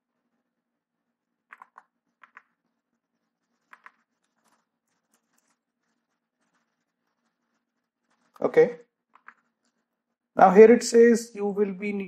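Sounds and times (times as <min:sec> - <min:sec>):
computer mouse or key clicks: 0:01.5 - 0:02.6, 0:03.6 - 0:05.6, 0:09.1 - 0:09.8.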